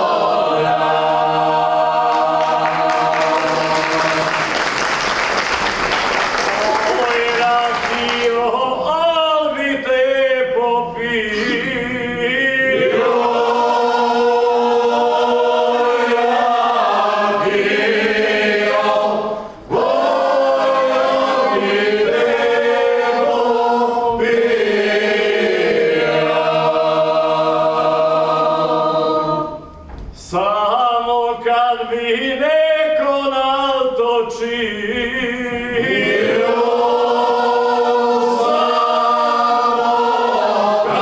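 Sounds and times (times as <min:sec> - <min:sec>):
men singing in harmony: 0:06.9 - 0:29.4, 0:30.3 - 0:41.0.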